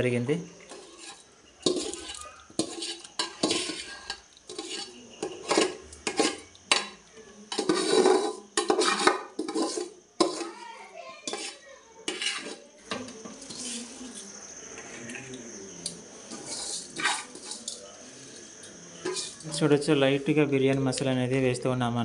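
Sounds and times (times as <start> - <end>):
metal spoon scraping metal pot: 0.6 - 10.6, 11.2 - 12.7, 13.3 - 14.3, 16.2 - 19.6.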